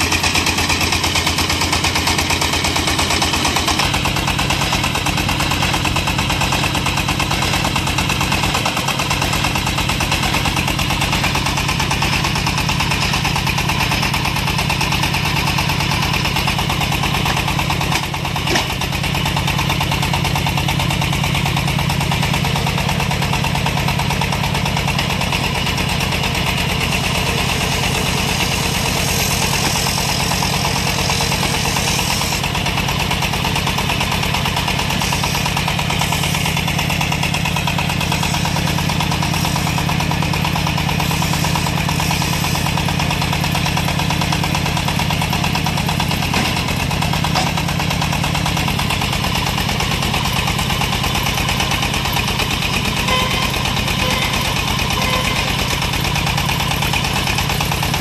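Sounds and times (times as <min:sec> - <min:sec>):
drilling rig engine running: 0:00.0 - 0:58.0.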